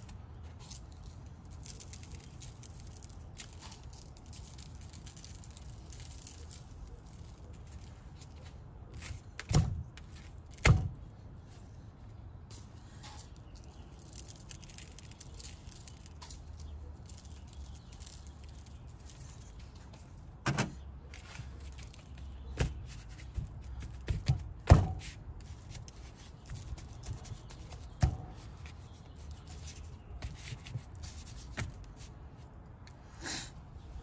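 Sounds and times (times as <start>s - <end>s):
light irregular crackling: 0.0s - 34.0s
knocks and thuds: 20.4s - 20.8s.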